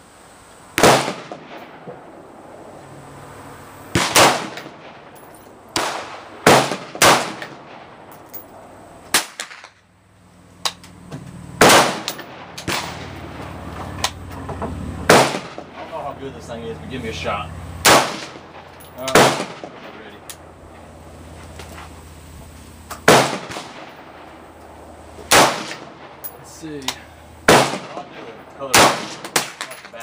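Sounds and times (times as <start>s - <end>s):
rifle shots with echo: 0.8s - 2.5s, 3.9s - 9.8s, 11.6s - 13.4s, 15.1s - 16.0s, 17.8s - 20.5s, 23.0s - 26.4s, 27.4s - 30.0s.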